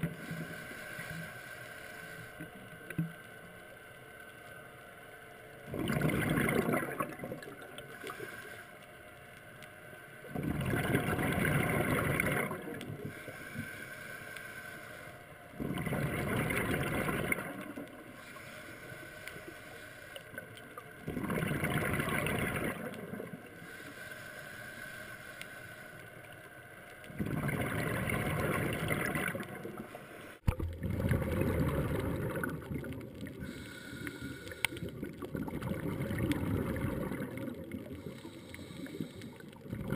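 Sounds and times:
diver exhaling bubbles: 5.7 - 7.7, 10.3 - 13.1, 15.6 - 17.9, 21.0 - 23.4, 27.1 - 29.9, 30.5 - 39.9.

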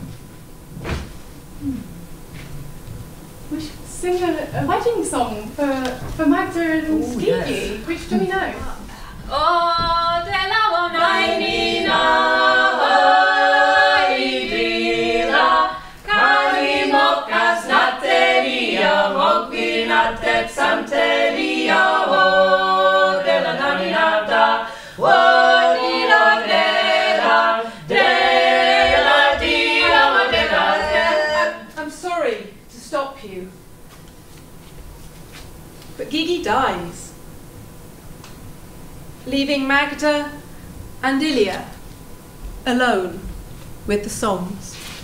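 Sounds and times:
group singing in harmony: 9.3 - 31.8.

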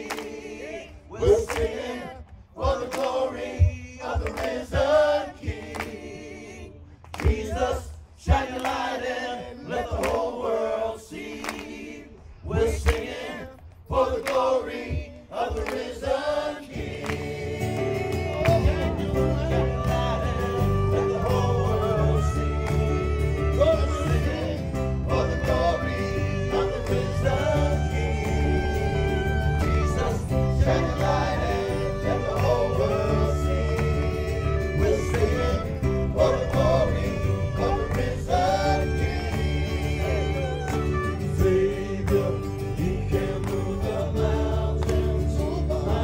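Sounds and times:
choir singing: 0.0 - 46.0
worship band playing: 16.1 - 46.0
low bass: 17.6 - 46.0.

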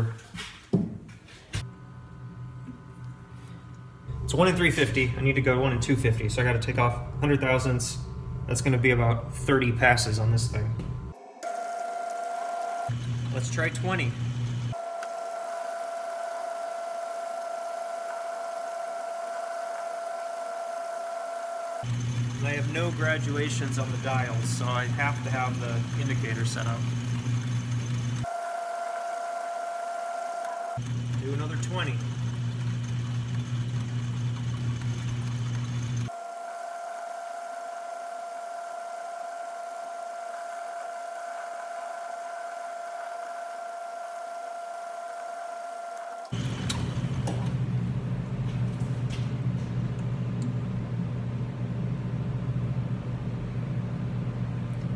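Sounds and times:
steady low hum: 1.6 - 11.8
steady high whine: 1.8 - 32.0
metal lathe whining: 10.6 - 47.4.

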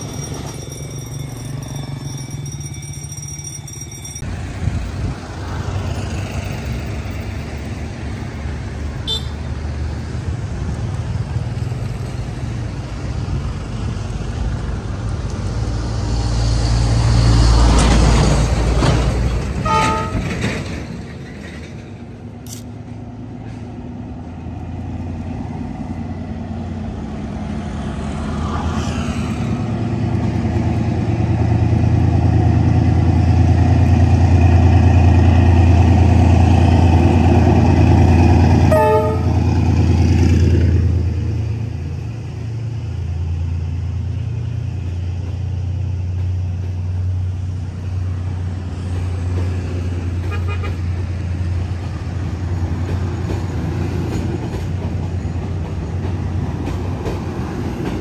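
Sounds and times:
train carriages rolling: 0.0 - 4.9, 17.5 - 23.9
locomotive engine drone: 0.0 - 58.0
train horn toot: 19.6 - 20.3, 38.7 - 39.6, 50.2 - 50.8.

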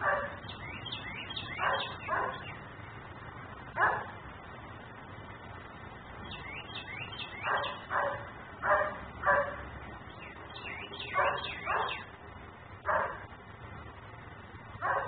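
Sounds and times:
dog barking: 0.0 - 0.4, 1.6 - 2.5, 3.8 - 4.2, 7.4 - 9.6, 11.1 - 12.1, 12.9 - 13.3, 14.8 - 15.0.

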